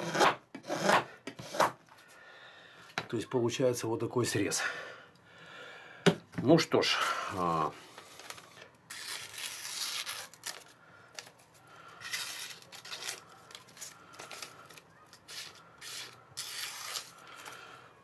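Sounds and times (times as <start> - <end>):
newspaper rustling: 7.8 - 17.7
knife slicing paper: 8.9 - 10.7, 12.0 - 17.5.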